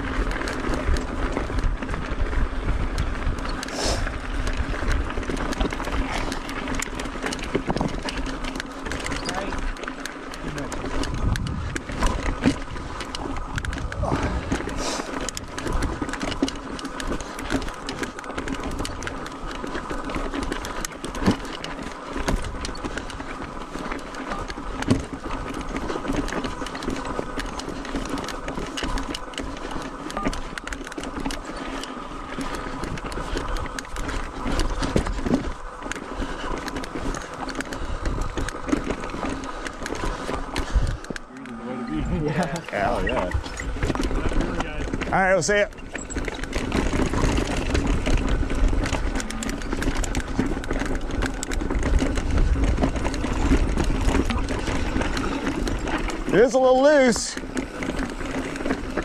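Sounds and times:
bike rattling on rocky trail: 0.0s - 59.0s.

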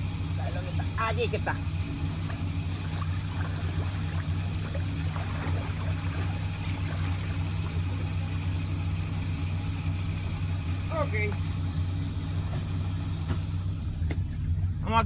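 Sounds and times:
car engine idling: 0.0s - 15.0s
water sloshing as person wades: 1.9s - 10.2s.

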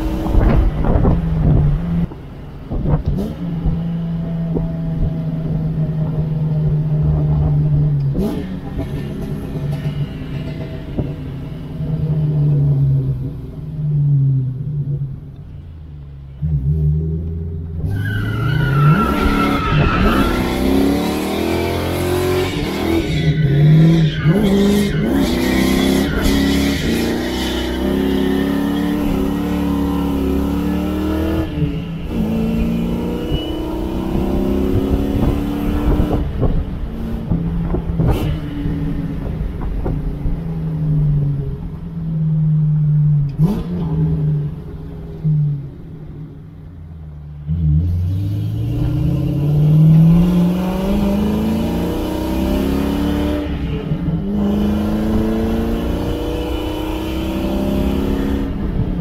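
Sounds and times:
car engine accelerating hard: 16.4s - 41.8s, 47.4s - 59.0s.

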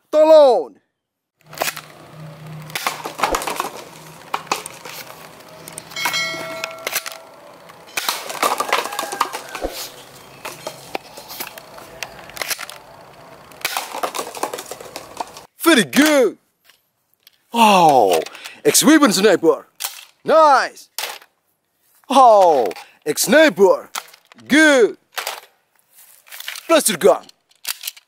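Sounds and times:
brief ringing tone: 5.8s - 8.0s.

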